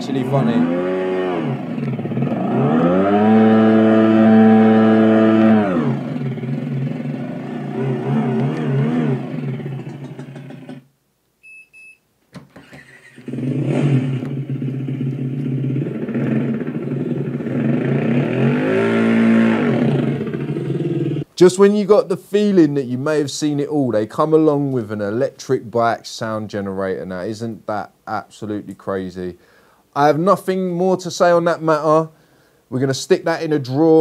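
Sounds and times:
simulated motorcycle engine revving: 0:00.0 - 0:10.8, 0:12.8 - 0:21.3
short beeps: 0:11.4 - 0:12.0.

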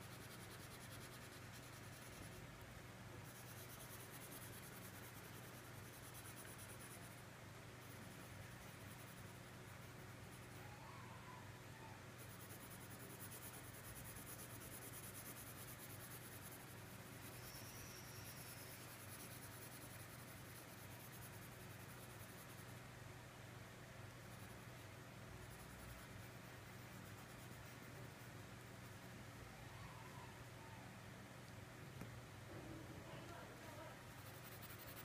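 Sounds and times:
crayon scratching on paper: 0:00.0 - 0:02.4, 0:03.2 - 0:07.2, 0:12.2 - 0:22.7, 0:25.4 - 0:29.0, 0:33.3 - 0:35.0.

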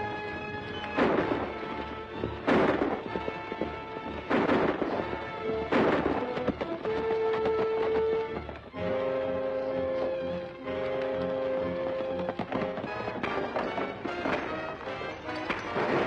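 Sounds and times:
dramatic orchestral music: 0:00.0 - 0:16.0
gunshots with echo: 0:00.9 - 0:01.8, 0:02.4 - 0:08.2, 0:12.4 - 0:16.0.

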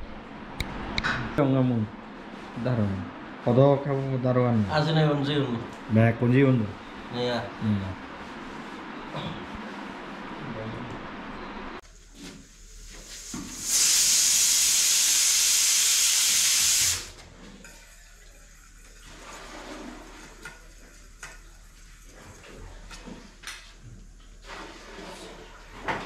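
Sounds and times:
loud hiss of escaping air: 0:13.0 - 0:17.1.

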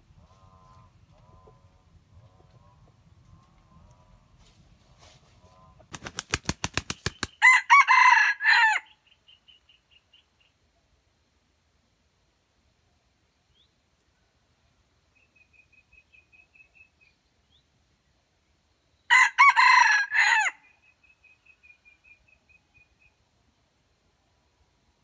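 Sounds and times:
rooster crowing: 0:07.4 - 0:08.9, 0:19.1 - 0:20.7.

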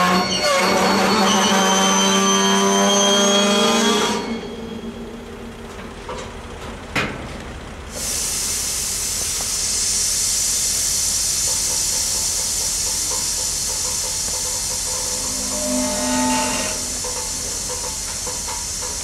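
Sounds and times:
freight train rolling past: 0:00.0 - 0:06.9, 0:08.6 - 0:19.0
air brakes hissing: 0:07.9 - 0:19.0.

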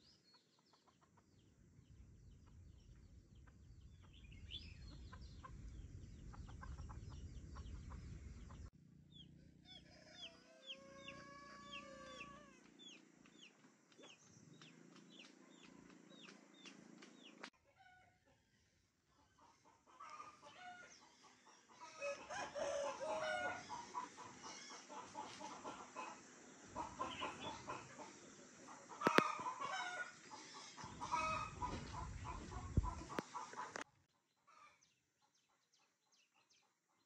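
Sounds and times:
rooster crowing: 0:09.4 - 0:12.6, 0:21.8 - 0:24.8, 0:31.0 - 0:32.0.

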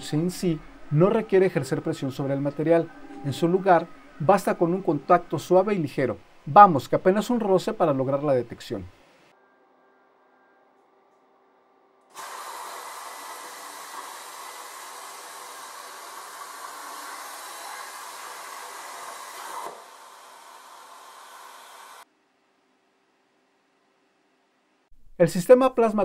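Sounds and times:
air hissing through torch: 0:12.1 - 0:22.0
plasma cutter arc hissing: 0:12.2 - 0:22.0.

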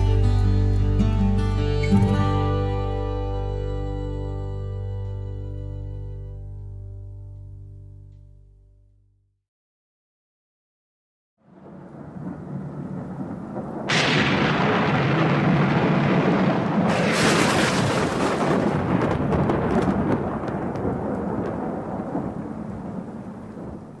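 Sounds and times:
rolling thunder: 0:11.5 - 0:24.0
thunder cracks: 0:11.5 - 0:24.0.

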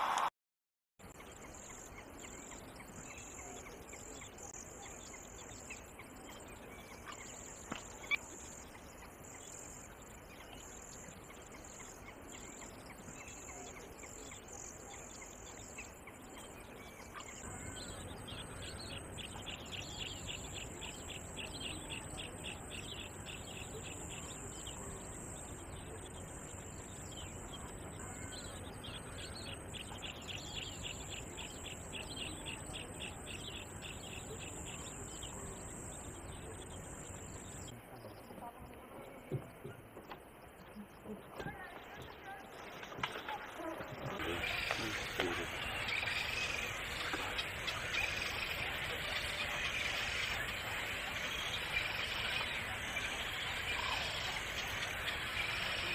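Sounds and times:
high insect drone: 0:43.6 - 0:55.9
bird chirping rapidly: 0:44.2 - 0:55.9.

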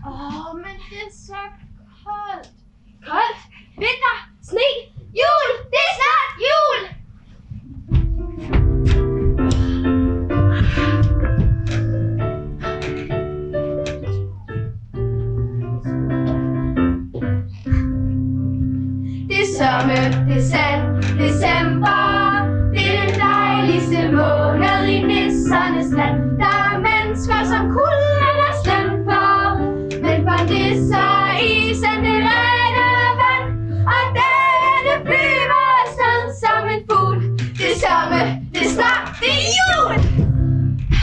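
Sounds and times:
instrumental accompaniment: 0:07.8 - 0:41.0
young voices singing: 0:19.3 - 0:40.2.

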